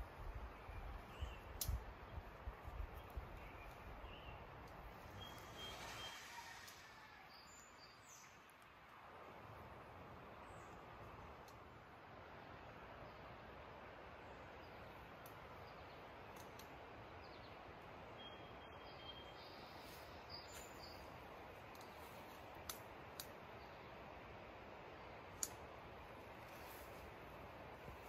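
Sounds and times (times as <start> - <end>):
faint outdoor hiss: 0.0 - 28.0
bird chirp: 0.5 - 2.3, 2.9 - 8.6, 17.2 - 21.2
soft clicks: 1.6 - 1.8, 16.3 - 16.8, 21.7 - 23.4, 25.4 - 25.6.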